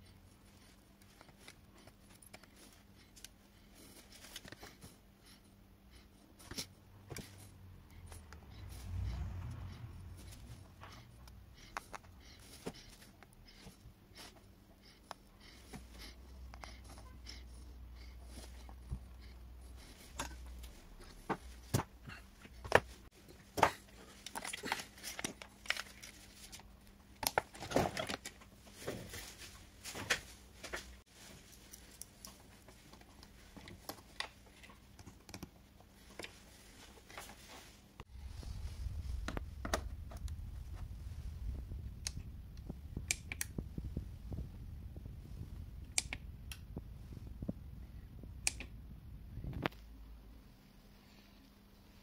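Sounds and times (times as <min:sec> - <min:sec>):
faint steady hum: 0:00.0 - 0:52.0
low rumble: 0:07.7 - 0:11.7, 0:38.0 - 0:50.4
handling clicks and rustles: 0:18.3 - 0:48.8.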